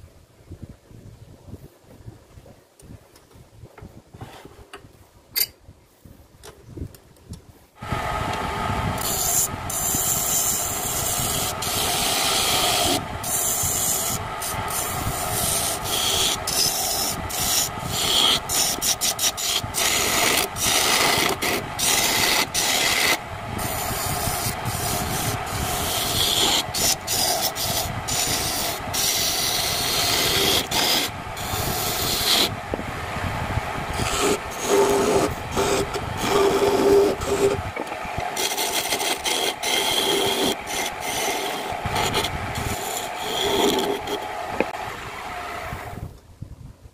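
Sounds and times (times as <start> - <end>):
chisel scraping wood on lathe: 8.9 - 32.6, 33.9 - 44.8.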